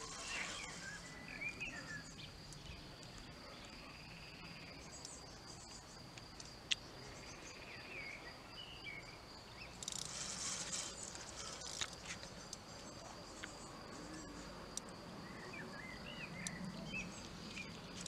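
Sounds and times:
bird chirps: 0:00.0 - 0:02.9, 0:15.2 - 0:17.8
insects trilling: 0:00.0 - 0:18.0.

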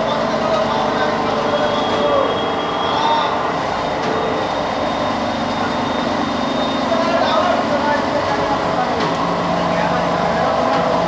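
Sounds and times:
loud machinery noise: 0:00.0 - 0:11.0
high squeals and whines: 0:01.2 - 0:07.5.

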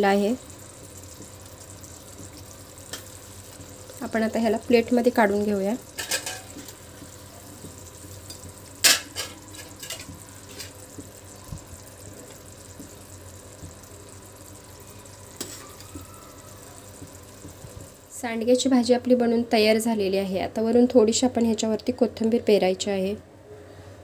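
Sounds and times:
curry sizzling in pan: 0:00.0 - 0:18.2.

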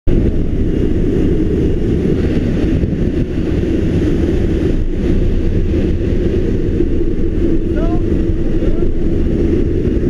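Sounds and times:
propeller plane engine: 0:00.1 - 0:10.0
wind buffeting microphone: 0:00.1 - 0:10.0
wind rushing: 0:00.1 - 0:10.0.

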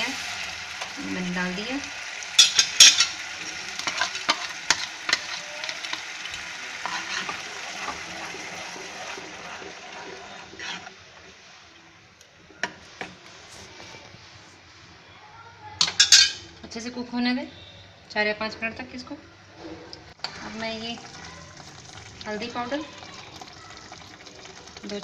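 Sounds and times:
tomato puree sizzling in oil: 0:00.0 - 0:13.8, 0:20.1 - 0:25.0
metal spoon scraping a pan: 0:02.4 - 0:11.0, 0:15.8 - 0:16.4, 0:20.2 - 0:20.9.

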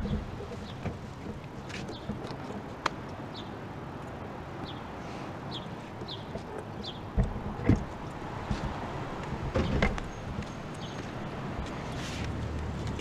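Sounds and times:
outdoor background noise: 0:00.0 - 0:13.0
knocks: 0:07.1 - 0:10.6.

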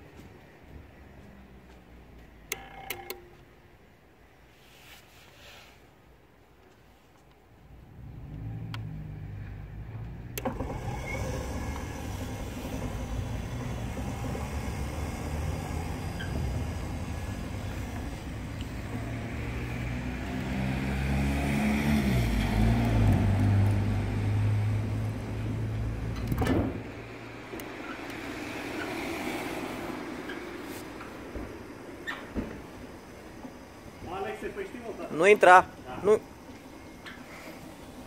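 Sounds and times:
gate motor humming: 0:08.8 - 0:21.1.

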